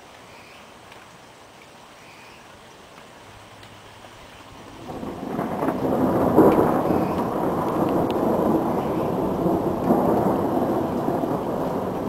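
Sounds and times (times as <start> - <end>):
thunder rumbling: 4.6 - 12.0.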